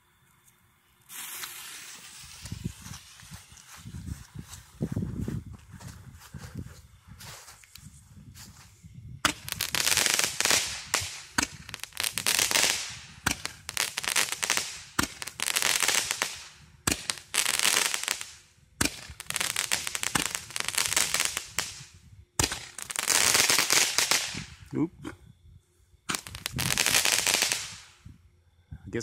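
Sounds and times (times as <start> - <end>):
firework crackling: 1.0 - 4.6, 9.2 - 24.7, 26.1 - 28.0.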